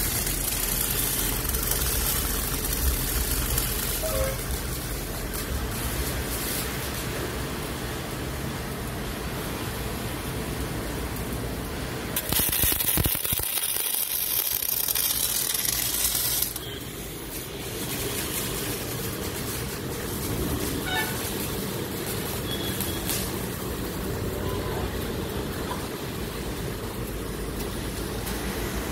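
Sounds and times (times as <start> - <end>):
loud hiss: 0.0 - 7.3, 12.1 - 24.5
workshop noise: 0.0 - 7.8, 11.4 - 28.9.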